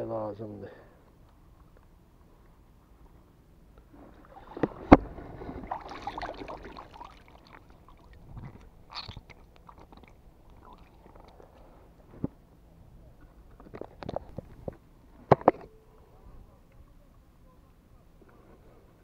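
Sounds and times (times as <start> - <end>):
water splashing: 4.1 - 11.4.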